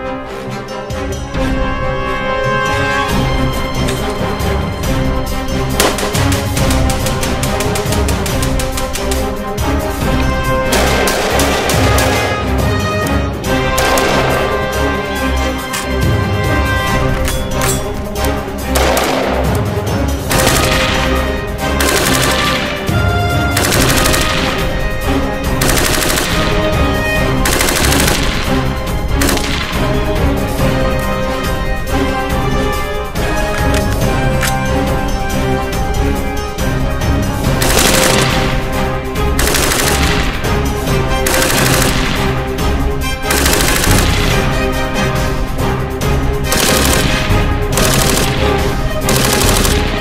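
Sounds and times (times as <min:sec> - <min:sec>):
music playing: 0:00.0 - 0:50.0
rapid rifle fire: 0:05.7 - 0:09.4, 0:10.7 - 0:12.5, 0:13.6 - 0:14.8, 0:18.8 - 0:19.7, 0:20.3 - 0:30.2, 0:37.6 - 0:44.8, 0:46.4 - 0:50.0
machine gun bursts: 0:21.8 - 0:22.8, 0:23.6 - 0:24.7, 0:25.6 - 0:26.7, 0:27.4 - 0:28.6, 0:37.6 - 0:38.6, 0:39.4 - 0:40.5, 0:41.3 - 0:42.3, 0:43.3 - 0:44.4, 0:46.5 - 0:50.0.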